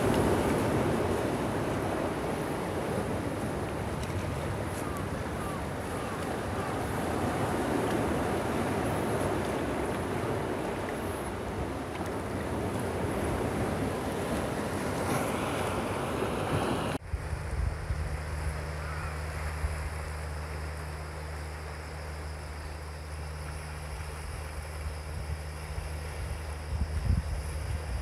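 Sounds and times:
sea surf washing among boulders: 0.0s - 21.7s
low steady rumble: 17.0s - 28.0s.

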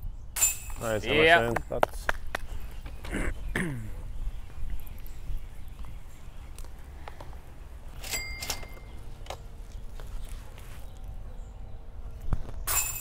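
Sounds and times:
disc hitting metal chains: 0.4s - 0.9s, 8.0s - 9.0s, 12.7s - 13.0s
light metallic clink: 12.7s - 13.0s.

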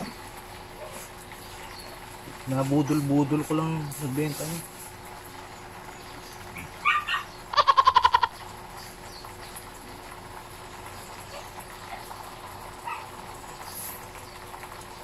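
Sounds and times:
goat bleating: 7.6s - 8.3s.

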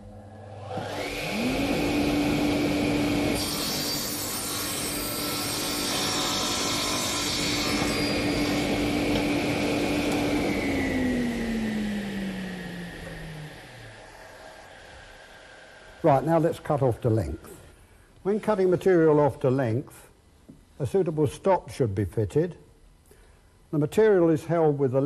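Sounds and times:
radial arm saw motor humming: 0.5s - 16.4s
saw blade cutting wood: 3.3s - 9.4s.

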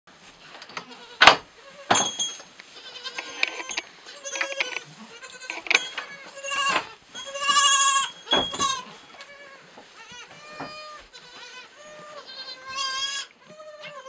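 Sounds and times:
goat kids bleating: 0.8s - 14.0s
sharp knocks: 8.3s - 8.8s.

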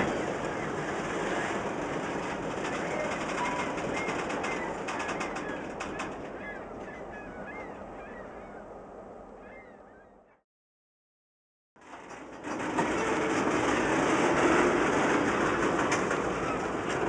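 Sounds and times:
train wheels rumbling on rail: 0.0s - 8.1s, 11.8s - 17.0s
birds chirping: 2.6s - 10.4s.

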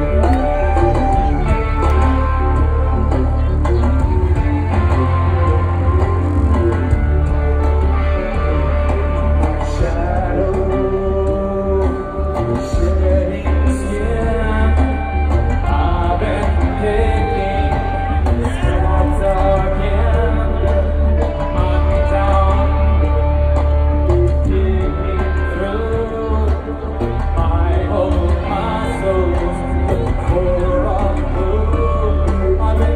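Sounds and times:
rock band playing live: 0.0s - 32.9s.

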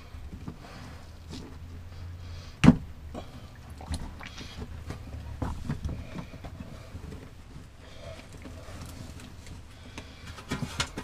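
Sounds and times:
hands handling plastic hoses: 3.8s - 11.0s.

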